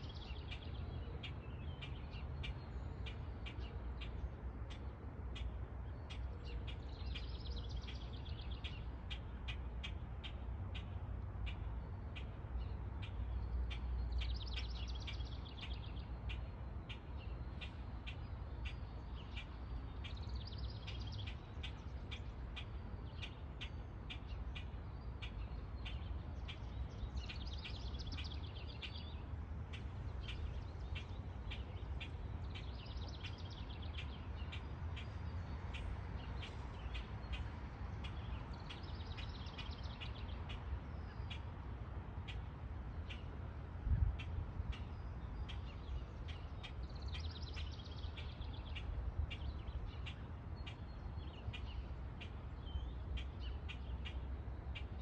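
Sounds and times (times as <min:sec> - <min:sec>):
songbird trilling: 0:13.0 - 0:41.6, 0:44.7 - 0:55.0.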